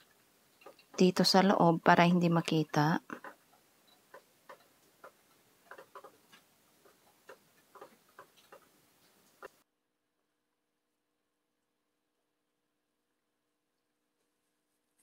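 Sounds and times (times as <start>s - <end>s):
yarn needle clicks and rustles: 0.0s - 9.6s.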